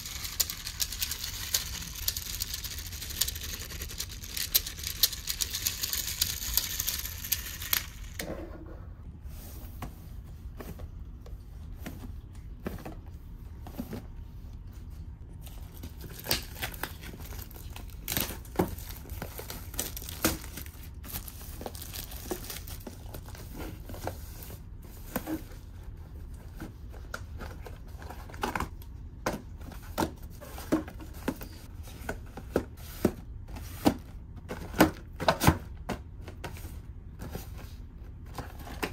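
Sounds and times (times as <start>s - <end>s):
plastic wrap crinkling and tearing: 15.7s - 23.3s.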